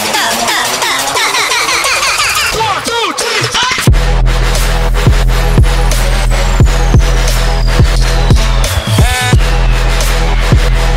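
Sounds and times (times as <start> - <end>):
electronic music: 0.0 - 10.9
deep bass-drum hits: 3.9 - 10.9.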